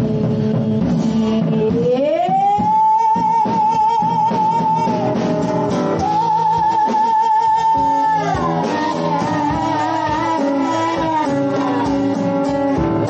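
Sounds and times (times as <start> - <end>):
band chords: 4.2 - 13.0.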